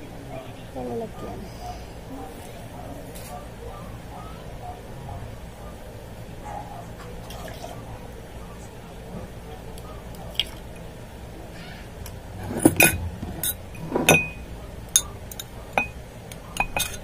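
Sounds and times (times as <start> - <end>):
glassware clinking: 12.4 - 17.0.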